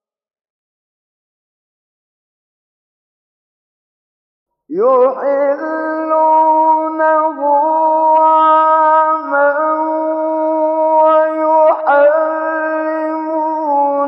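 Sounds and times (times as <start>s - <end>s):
man chanting melodic recitation: 4.7s - 14.0s.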